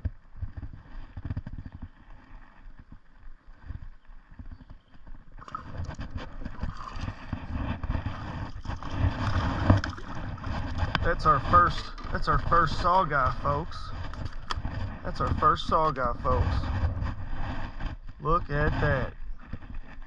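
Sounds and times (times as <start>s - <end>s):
low rumbling: 5.3s - 20.0s
thumps on microphone: 5.4s - 20.0s.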